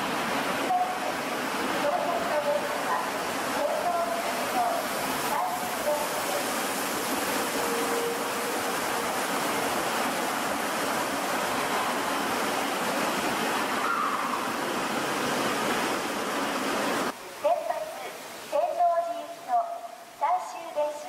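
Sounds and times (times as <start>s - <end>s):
subway train wheels rumbling: 4.1s - 12.4s.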